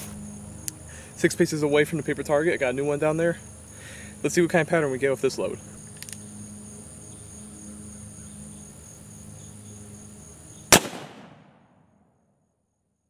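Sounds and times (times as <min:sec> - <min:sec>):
insects buzzing: 0:00.0 - 0:11.6
revolver gunshot: 0:10.7 - 0:11.8.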